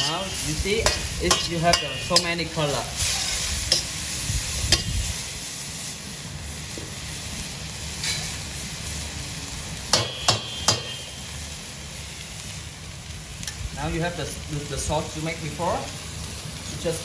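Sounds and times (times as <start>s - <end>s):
metal ladle scraping and knocking wok: 0.0s - 4.0s, 4.7s - 5.1s
vegetables sizzling in a wok: 0.0s - 17.0s.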